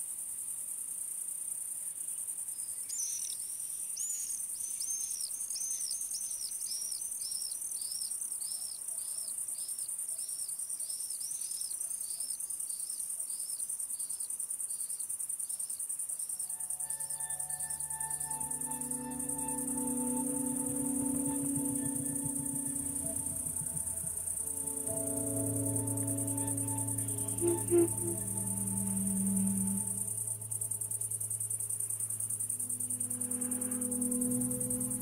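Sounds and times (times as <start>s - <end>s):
insects chirring: 13.5s - 35.0s
soft ambient music: 16.4s - 35.0s.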